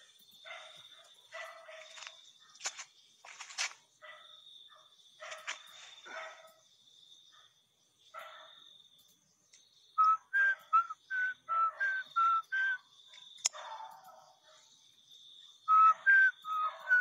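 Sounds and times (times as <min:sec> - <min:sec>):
faint dog barking: 0:00.4 - 0:02.8, 0:03.9 - 0:06.7, 0:07.3 - 0:08.7, 0:13.1 - 0:14.9, 0:15.8 - 0:17.0
sharp clicks: 0:13.1 - 0:13.6.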